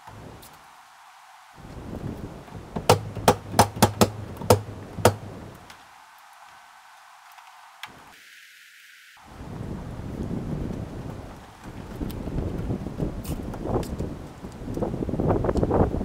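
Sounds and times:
hammer driving nails into board: 2.8 - 5.4.

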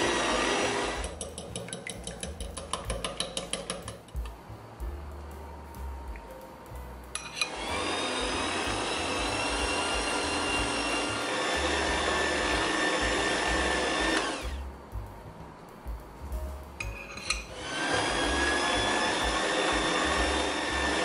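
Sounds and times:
stand mixer motor whining: 0.0 - 1.1, 7.4 - 14.6, 17.5 - 21.0.

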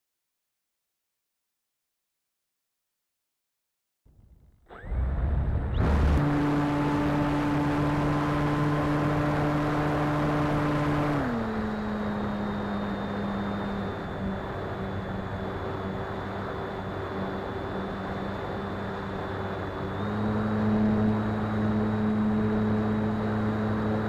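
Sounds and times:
electric motor and propeller whining: 4.7 - 24.0
steady rushing noise: 4.8 - 8.8.

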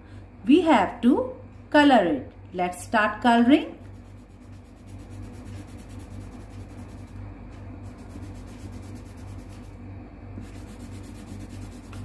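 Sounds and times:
steady low hum: 0.0 - 12.0
pencil scratching on paper: 4.0 - 7.2, 7.8 - 9.8, 10.4 - 12.0.

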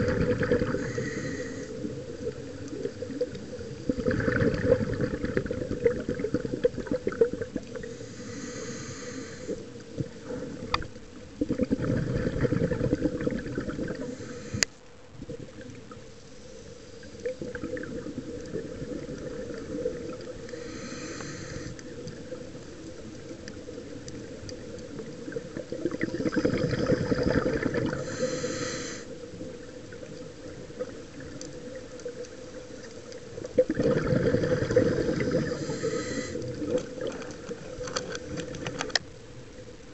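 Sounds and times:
gurgling exhaled bubbles: 0.0 - 8.4, 9.5 - 14.6, 17.0 - 38.9
regulator air hiss: 0.8 - 1.8, 7.8 - 9.7, 14.0 - 14.8, 20.5 - 21.8, 28.0 - 29.2, 35.4 - 36.6.

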